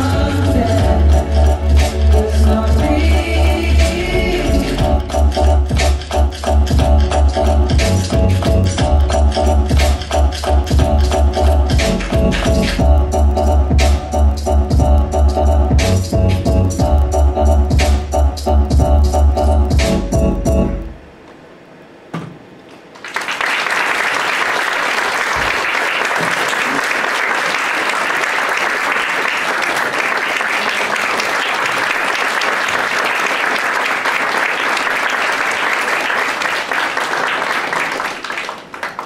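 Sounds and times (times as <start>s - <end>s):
audience applauding: 22.9s - 39.0s.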